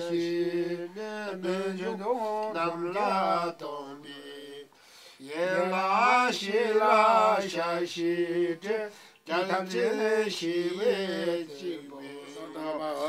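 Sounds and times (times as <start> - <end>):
man chanting: 9.3 - 13.0.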